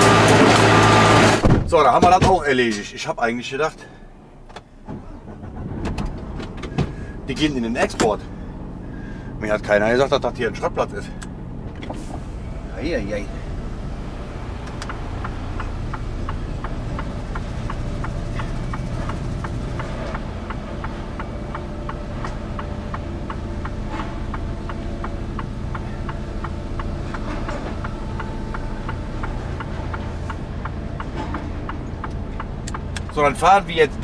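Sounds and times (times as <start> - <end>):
diesel engine running low: 0.0 - 1.9, 2.6 - 34.0
turn signal relay ticking: 14.2 - 34.0.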